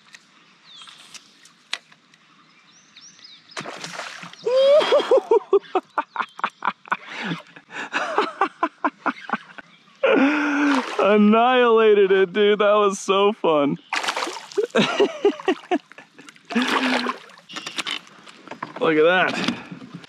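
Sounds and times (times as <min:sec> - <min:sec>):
fish splashing in water: 0:03.6 - 0:04.5, 0:13.9 - 0:14.8, 0:16.4 - 0:17.5
man crying out excitedly: 0:04.4 - 0:05.6
giggling laughter: 0:04.5 - 0:10.8, 0:14.6 - 0:17.0.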